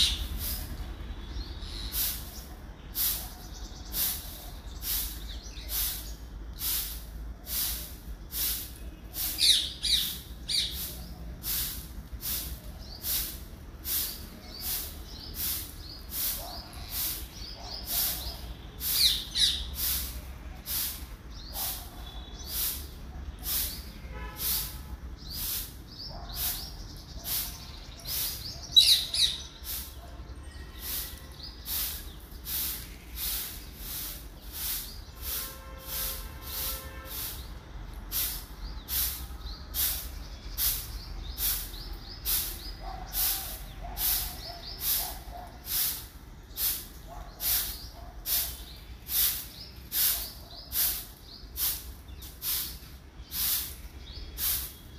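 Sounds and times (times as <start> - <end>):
parakeets screeching: 0.0 - 0.6, 9.2 - 10.9, 14.5 - 19.9, 25.4 - 35.4
very high chirps: 8.4 - 11.7, 12.4 - 20.0, 25.3 - 35.4.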